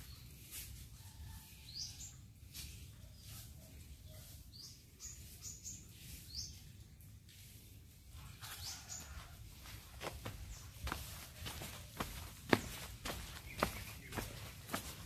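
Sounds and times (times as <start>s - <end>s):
small birds chirping: 3.0s - 7.1s, 8.2s - 15.0s
footsteps: 8.4s - 15.0s.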